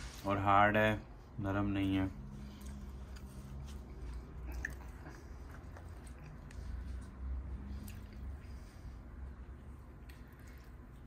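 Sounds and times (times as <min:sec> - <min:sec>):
quiet chewing: 0:02.3 - 0:11.0.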